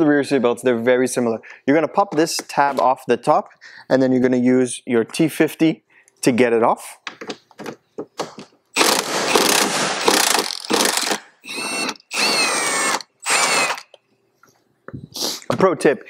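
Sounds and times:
impact driver hammering: 0:08.8 - 0:13.9
impact driver motor whining: 0:08.8 - 0:14.0.

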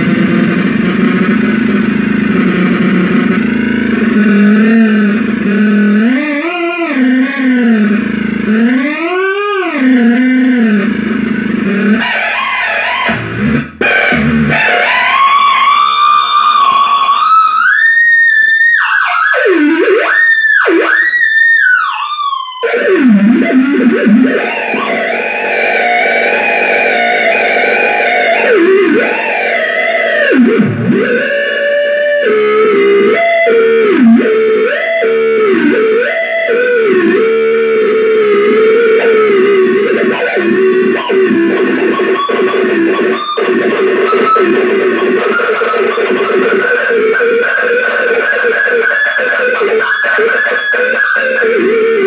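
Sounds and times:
buzzy distorted noise: 0:00.0 - 0:52.0
whistling electronic tone: 0:14.0 - 0:33.5, 0:40.5 - 0:51.5.

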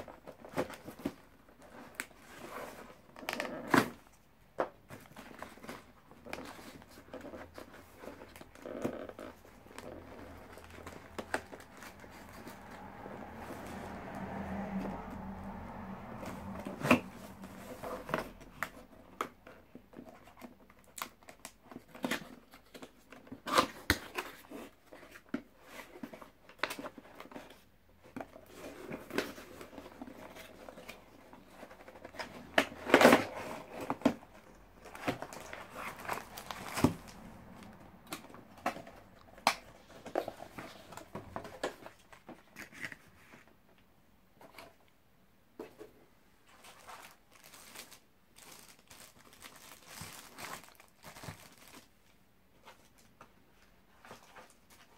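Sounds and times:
cardboard packaging handled: 0:00.0 - 0:14.1, 0:16.1 - 0:43.5, 0:46.4 - 0:54.9
plastic wrapping crinkling: 0:28.9 - 0:41.9, 0:46.5 - 0:52.2.

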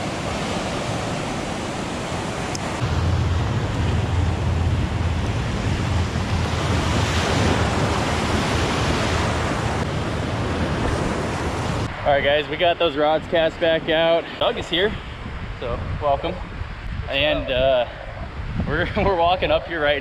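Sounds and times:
surf breaking on beach: 0:00.0 - 0:12.0
wind rumble on microphone: 0:00.0 - 0:20.0.

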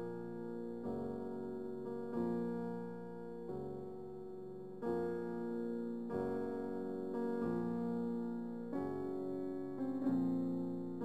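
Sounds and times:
slow piano chords: 0:00.0 - 0:11.0.

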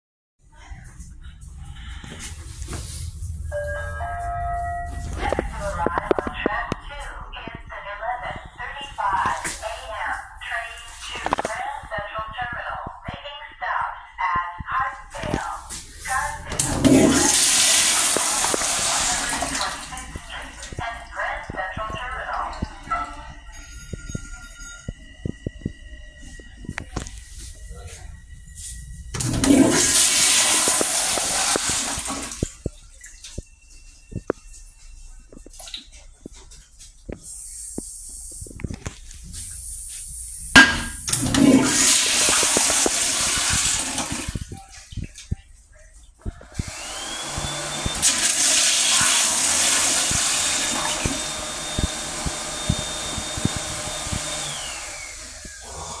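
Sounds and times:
toilet flushing water rush: 0:16.5 - 0:20.2, 0:29.1 - 0:32.5, 0:40.6 - 0:44.4, 0:46.7 - 0:56.0.

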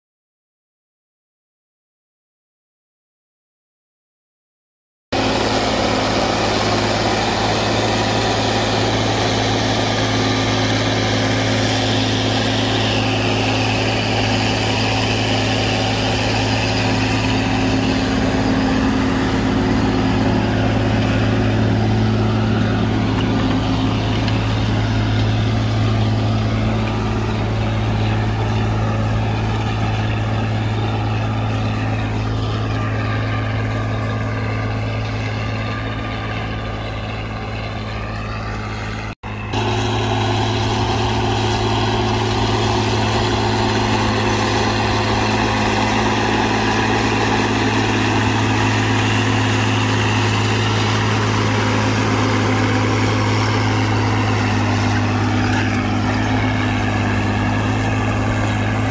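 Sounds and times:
tractor engine under heavy load: 0:05.1 - 0:58.9.

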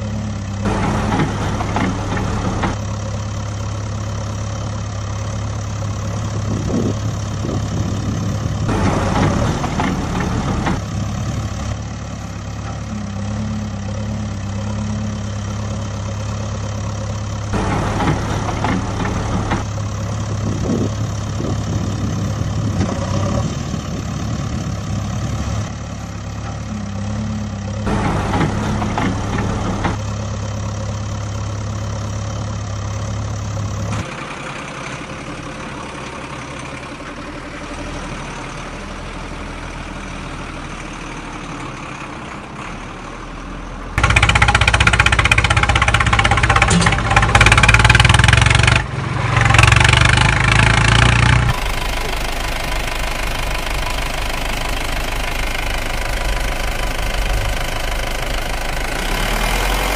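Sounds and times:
engine idling hum: 0:00.0 - 0:59.9
rough engine sound: 0:00.0 - 0:59.9
loud noisy bursts: 0:44.0 - 0:51.8.

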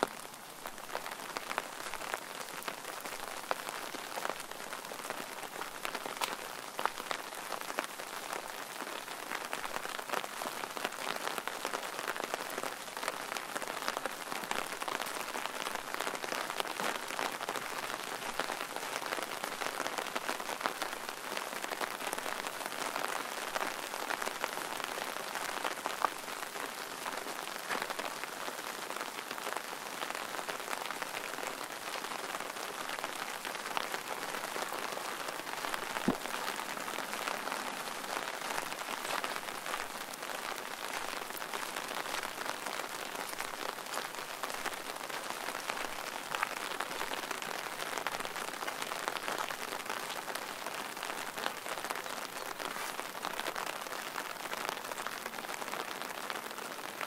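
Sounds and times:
rain drops hitting close by: 0:00.0 - 0:57.0
steady rain falling: 0:00.0 - 0:57.0.

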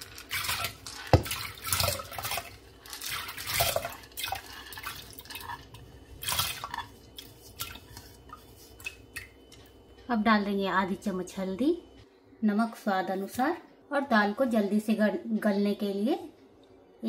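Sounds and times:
lentils splashing into water: 0:00.0 - 0:08.1.

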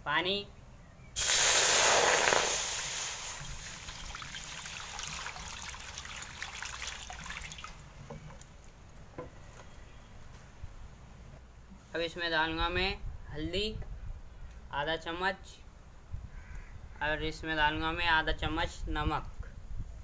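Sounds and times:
water hissing on hot pan: 0:01.2 - 0:07.8
water trickling and splashing: 0:01.2 - 0:08.8.

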